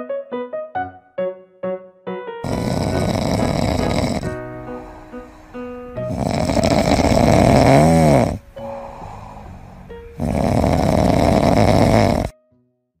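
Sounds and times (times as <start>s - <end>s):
dog breathing: 2.4s - 12.3s
puppy snoring: 2.4s - 12.3s.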